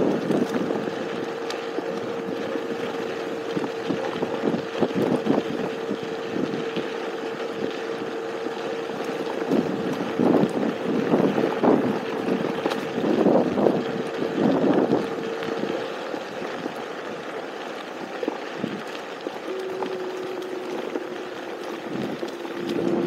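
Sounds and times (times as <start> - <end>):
wind buffeting on microphone: 0.0 - 17.4, 18.0 - 23.0
electric scooter motor whine: 0.0 - 23.0.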